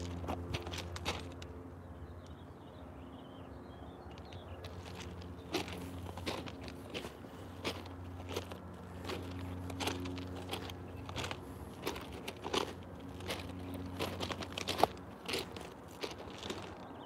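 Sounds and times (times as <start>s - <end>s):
footsteps crunching on gravel: 0.0s - 1.6s, 4.2s - 17.0s
low steady hum: 0.0s - 17.0s.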